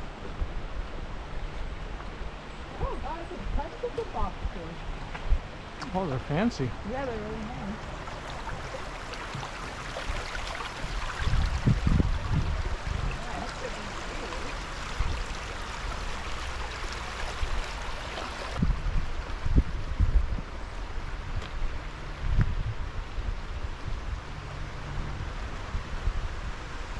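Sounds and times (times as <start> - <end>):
creek water rushing: 1.1 - 18.7
wind buffeting microphone: 2.2 - 16.4, 18.6 - 24.2.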